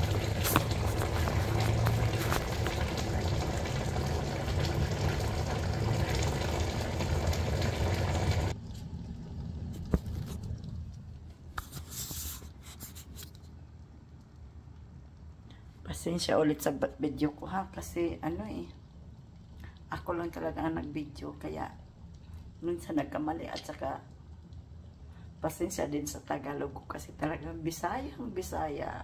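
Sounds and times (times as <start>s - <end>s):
kitchen rushing noise with hum: 0.0s - 9.0s.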